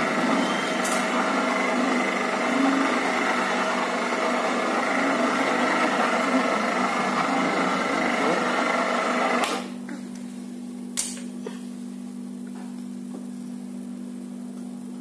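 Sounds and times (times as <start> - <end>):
electric motor humming: 0.0 - 9.7.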